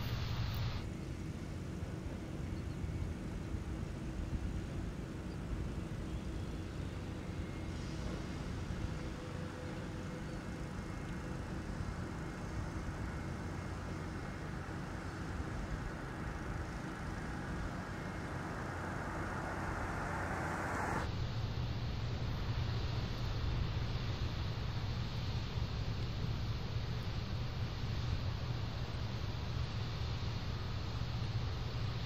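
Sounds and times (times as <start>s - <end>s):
faint steady hums: 0.0s - 32.0s
heavy machinery engine rumble: 7.0s - 32.0s.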